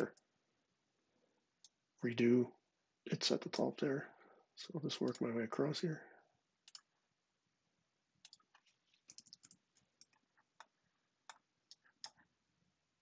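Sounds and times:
computer mouse clicks: 5.0s - 5.3s, 6.6s - 6.9s, 8.2s - 12.3s.

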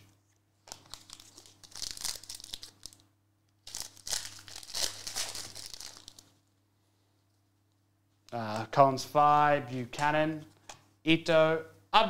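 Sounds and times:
foil wrapper crinkling: 0.6s - 6.4s.

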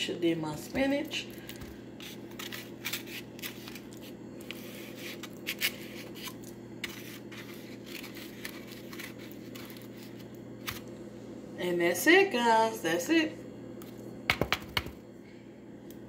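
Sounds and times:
plastic spoon scraping foam bowl: 2.0s - 10.8s.

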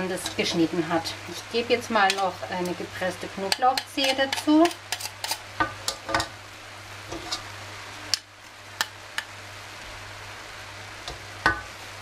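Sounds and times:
soft frying sizzle: 0.0s - 12.0s
metal spoon scraping wok: 3.5s - 6.2s, 7.1s - 7.5s.

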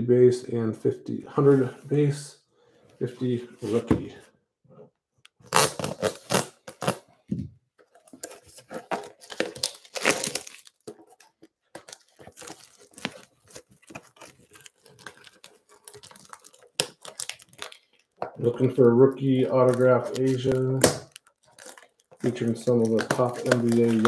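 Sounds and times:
plastic wrap tearing and crinkling: 5.4s - 7.1s, 8.0s - 24.0s
knife slitting plastic wrap: 8.6s - 10.8s, 19.6s - 24.0s.

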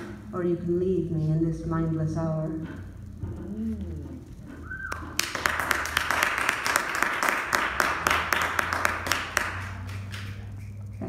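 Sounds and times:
audience applauding: 4.8s - 10.6s.

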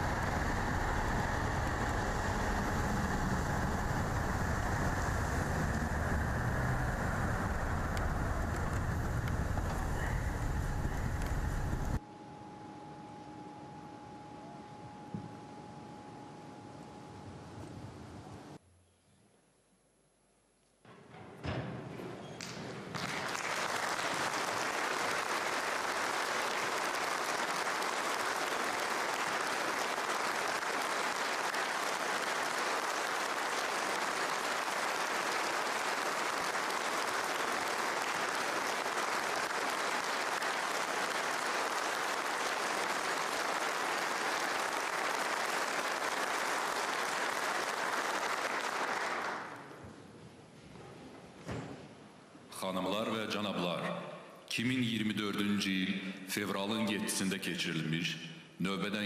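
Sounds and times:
audience applauding: 0.0s - 12.0s, 22.4s - 49.8s.

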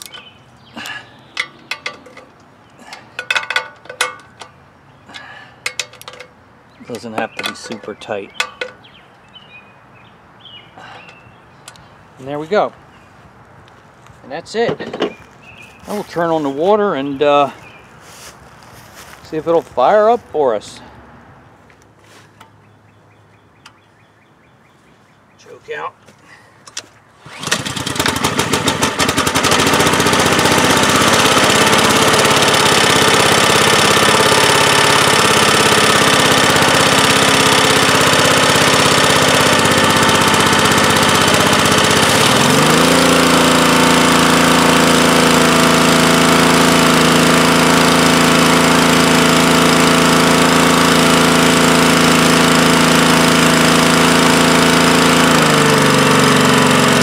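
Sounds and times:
pressure washer engine running: 0.0s - 8.8s, 27.2s - 57.0s.

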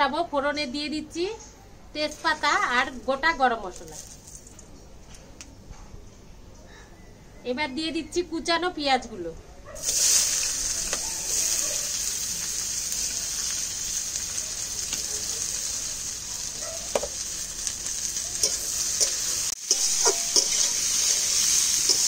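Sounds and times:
onions sizzling in hot oil: 9.8s - 22.0s
spoon scraping and clinking pan: 18.4s - 22.0s.

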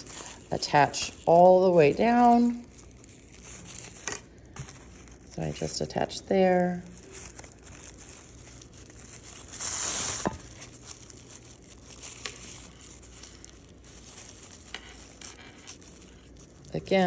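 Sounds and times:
plastic strip crinkling and rustling: 0.0s - 17.0s.

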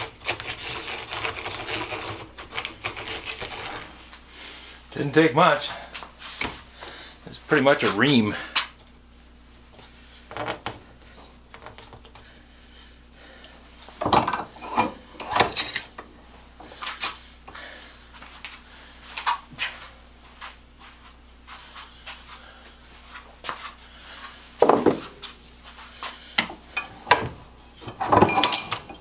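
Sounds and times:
wooden dowel scraping in hole: 0.0s - 4.0s.

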